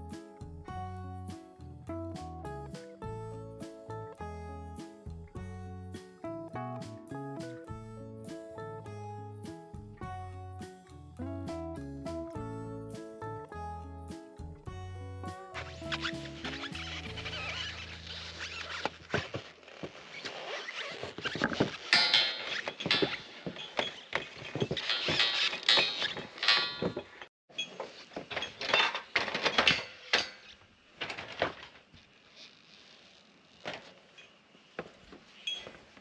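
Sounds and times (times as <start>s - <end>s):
footsteps on metal roof: 21.1s - 29.5s.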